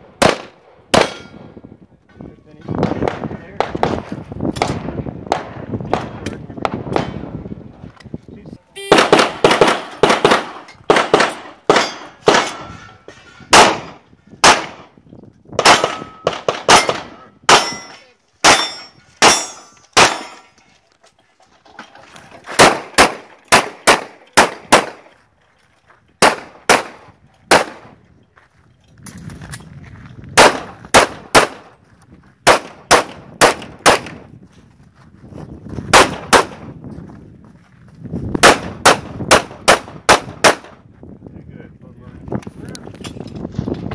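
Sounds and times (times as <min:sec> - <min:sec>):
pistol shots: 0:00.2 - 0:01.3, 0:08.8 - 0:12.7, 0:13.5 - 0:14.9, 0:15.6 - 0:20.4, 0:22.6 - 0:25.1, 0:26.2 - 0:28.0, 0:30.4 - 0:31.7, 0:32.4 - 0:34.2, 0:35.9 - 0:36.7, 0:38.4 - 0:40.8
bullets ringing on steel targets: 0:01.0 - 0:01.4, 0:15.7 - 0:20.6.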